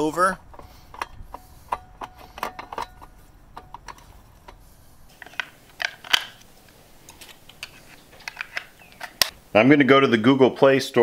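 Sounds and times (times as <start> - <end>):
metal box clicks and scrapes: 0.4 - 6.5, 7.1 - 9.3.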